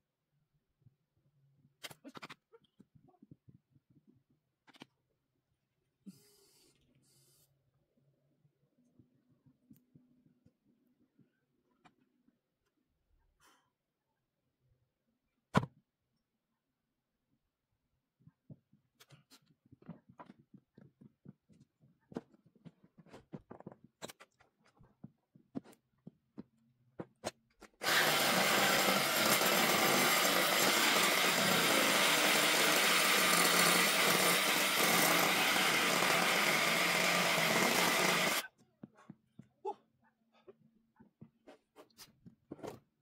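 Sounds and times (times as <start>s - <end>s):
power tool on wood: 27.8s - 38.4s.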